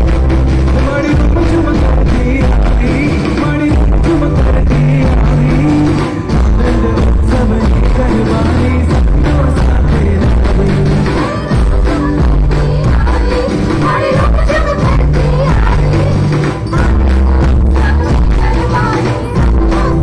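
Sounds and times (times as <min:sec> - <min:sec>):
drums and percussion beat: 0:00.0 - 0:20.0
guitars and keyboard: 0:00.0 - 0:20.0
heavy bass: 0:00.0 - 0:20.0
man singing: 0:00.6 - 0:12.0.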